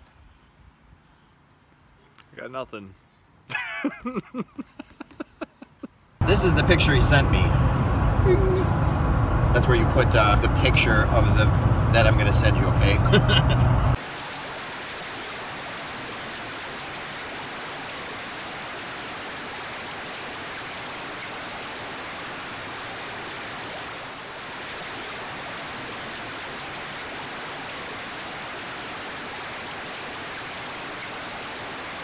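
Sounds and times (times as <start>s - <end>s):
running water splashing: 14.0s - 32.0s.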